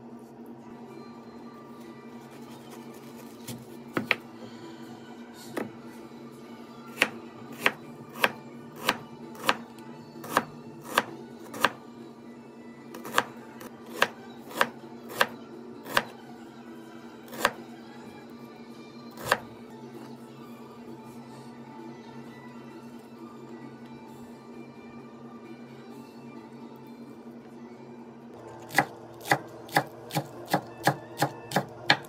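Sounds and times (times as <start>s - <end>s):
knife chopping on wooden board: 3.4s - 4.2s, 7.0s - 9.6s, 10.2s - 11.8s, 28.7s - 32.0s.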